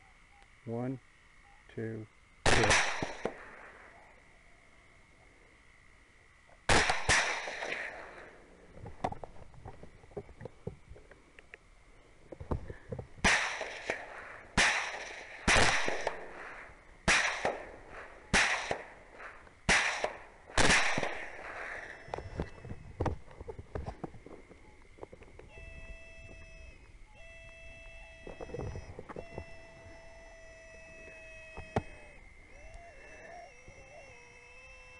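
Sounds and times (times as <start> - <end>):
rifle shots echoing: 2.4 - 3.9, 6.7 - 8.4, 13.2 - 22.0.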